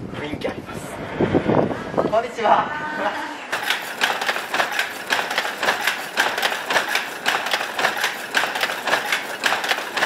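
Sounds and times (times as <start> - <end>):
loom clattering: 3.5 - 10.0.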